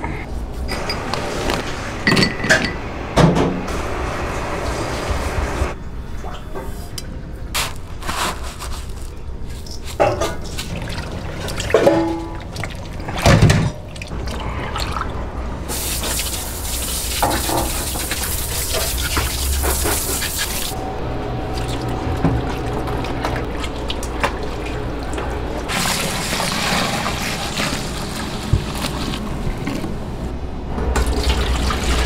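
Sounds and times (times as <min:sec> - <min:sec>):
water running and splashing: 0:15.7 - 0:20.8, 0:21.5 - 0:29.2.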